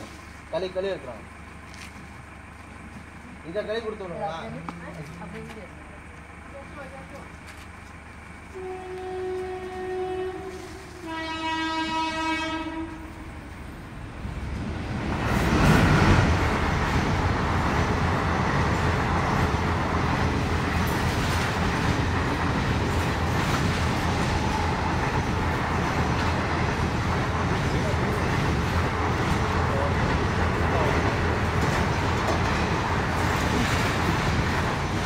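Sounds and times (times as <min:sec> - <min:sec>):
horn long tones: 0:08.4 - 0:13.5.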